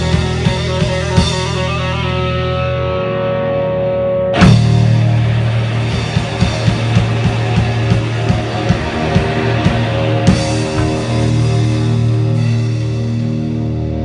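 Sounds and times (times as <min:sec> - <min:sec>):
distorted electric guitar chords: 0:00.0 - 0:14.0
drum hits: 0:04.4 - 0:13.2
held low bass note: 0:04.4 - 0:14.0.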